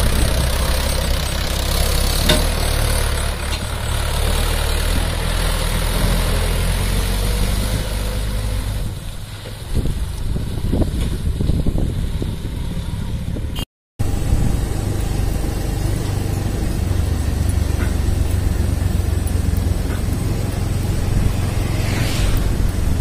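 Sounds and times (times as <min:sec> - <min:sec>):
road noise: 0:00.0 - 0:23.0
tractor diesel engine rumbling: 0:00.0 - 0:23.0
car swishing past: 0:19.8 - 0:23.0.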